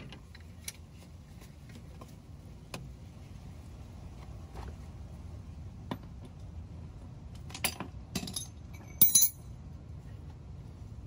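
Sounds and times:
small metal parts clinking: 0:07.6 - 0:09.5.

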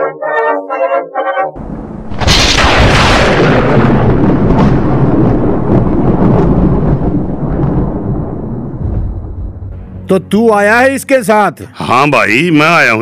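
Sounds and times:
thunder rumbling: 0:01.6 - 0:09.8.

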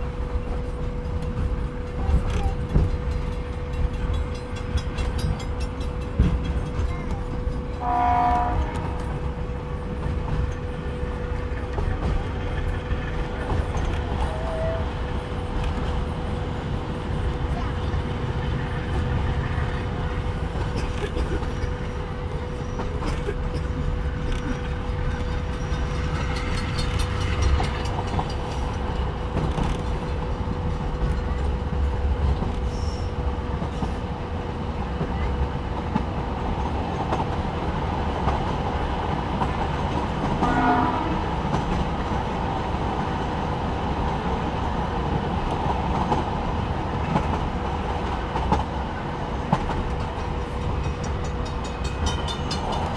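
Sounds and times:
train wheels rumbling on rails: 0:00.0 - 0:52.9
train horn: 0:07.7 - 0:09.3, 0:14.2 - 0:15.2, 0:40.4 - 0:41.4.

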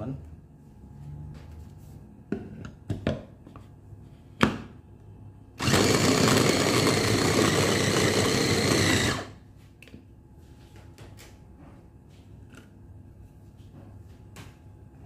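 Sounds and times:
electric food chopper running: 0:05.6 - 0:09.4.

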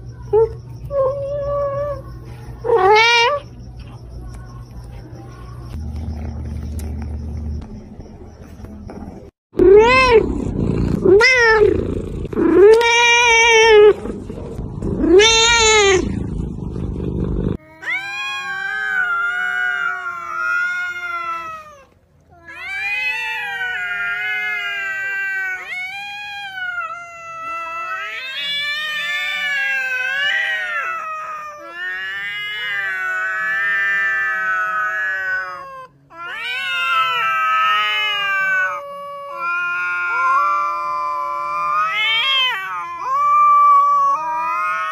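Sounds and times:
cats yowling: 0:00.3 - 0:03.6, 0:09.6 - 0:14.1, 0:15.0 - 0:16.2, 0:17.6 - 0:44.9
cat meowing loudly: 0:02.7 - 0:03.5, 0:11.0 - 0:11.8, 0:12.4 - 0:14.0, 0:15.0 - 0:16.1, 0:17.7 - 0:44.9.

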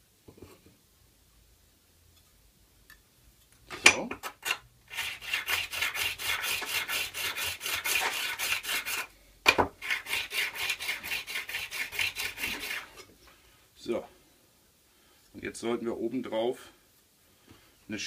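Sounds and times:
steel rubbing on water stone: 0:04.2 - 0:09.1, 0:09.8 - 0:13.0.

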